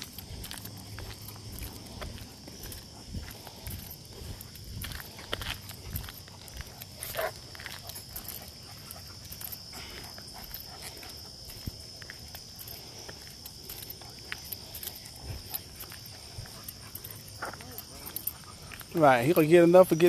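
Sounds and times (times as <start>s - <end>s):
crickets chirring: 0.0s - 20.0s
footsteps on pavement: 0.0s - 20.0s.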